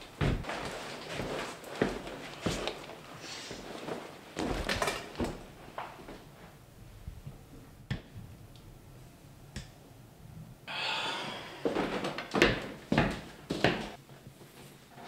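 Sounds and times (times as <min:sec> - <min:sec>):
heavy knocks and thuds: 0:00.2 - 0:00.5.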